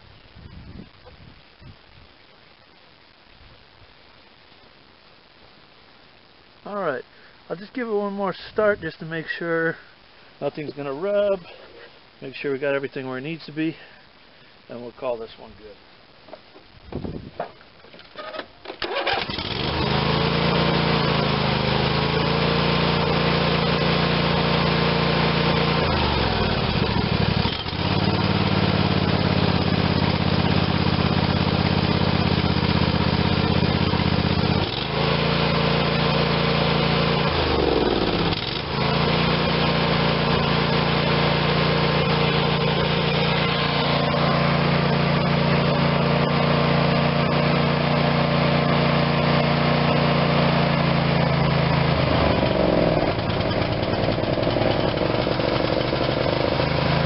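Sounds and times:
riding mower engine running: 18.2s - 57.0s.

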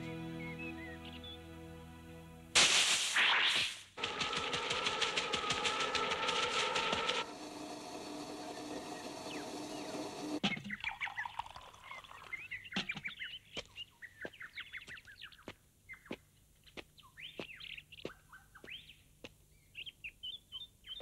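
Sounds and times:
steady hiss: 2.6s - 10.4s
birds chirping and calling: 8.3s - 21.0s.

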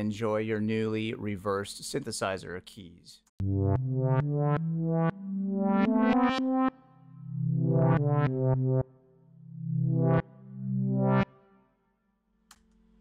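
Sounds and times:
reversed synthesizer chords: 3.4s - 11.6s.

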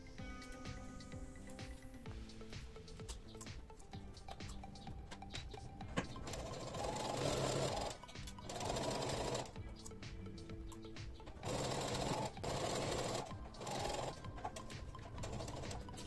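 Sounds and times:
sewing machine stitching: 6.2s - 9.6s, 11.4s - 16.0s.

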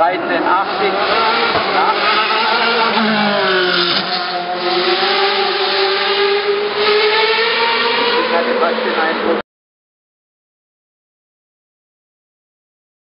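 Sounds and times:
race car engine passing: 0.2s - 9.4s.

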